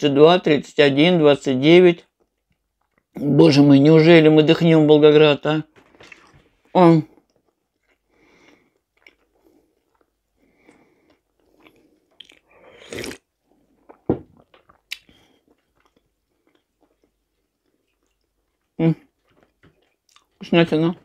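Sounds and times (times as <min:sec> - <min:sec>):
chewing with wet mouth sounds: 0:07.1 - 0:20.5
loud sip of tea: 0:12.4 - 0:13.3.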